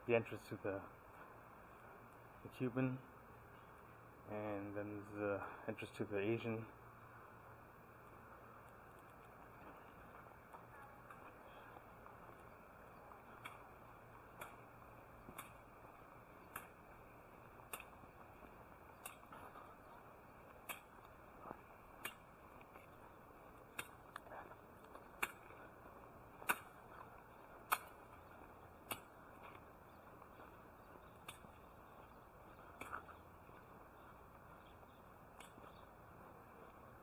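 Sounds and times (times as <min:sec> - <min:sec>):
background hiss: 0:00.0 - 0:37.0
footsteps clicking: 0:08.6 - 0:36.8.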